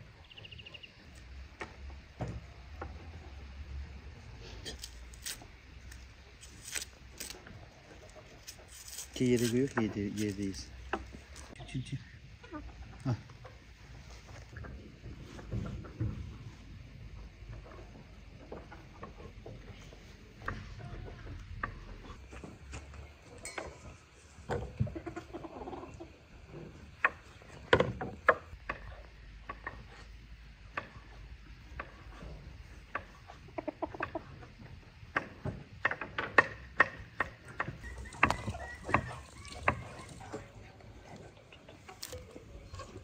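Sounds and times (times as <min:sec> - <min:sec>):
chickens pecking on hard ground: 0:00.2 - 0:11.6, 0:12.4 - 0:43.0
soft chicken clucks: 0:09.2 - 0:16.6, 0:17.2 - 0:27.7, 0:28.3 - 0:43.0.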